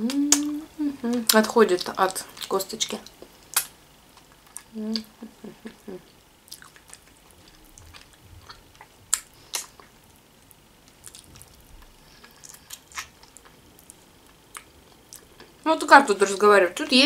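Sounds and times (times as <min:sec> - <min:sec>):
chewing: 0:06.5 - 0:09.9, 0:10.9 - 0:15.5.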